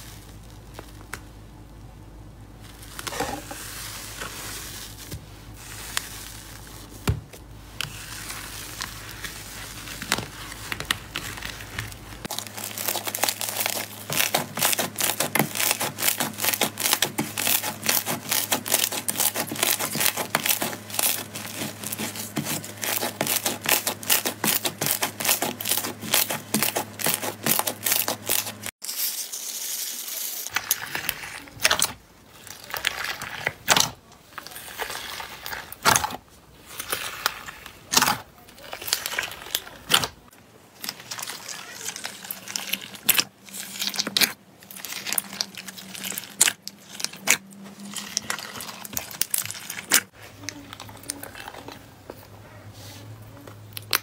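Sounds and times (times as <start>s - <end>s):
slime squishing: 0.0s - 28.8s, 30.5s - 54.0s
slime crackling and popping: 7.8s - 28.7s.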